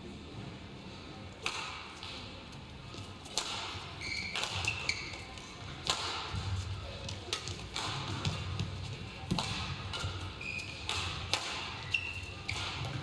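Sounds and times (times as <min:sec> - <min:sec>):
racket hitting shuttlecock: 0:01.4 - 0:02.3, 0:03.2 - 0:06.7, 0:07.3 - 0:13.0
shoes squeaking on court floor: 0:03.9 - 0:05.6, 0:09.9 - 0:13.0.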